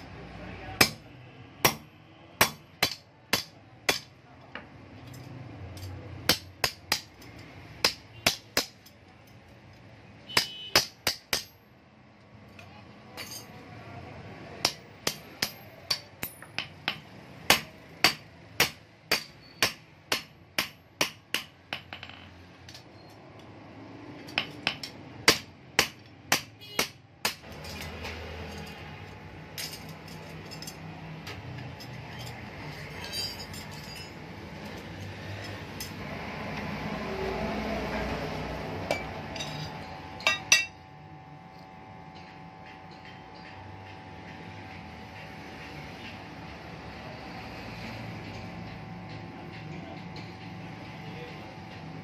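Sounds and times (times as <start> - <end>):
hammer striking steel on anvil: 0.8 - 4.2, 5.8 - 9.0, 10.3 - 11.6, 14.6 - 22.9, 24.2 - 28.8, 38.8 - 40.9.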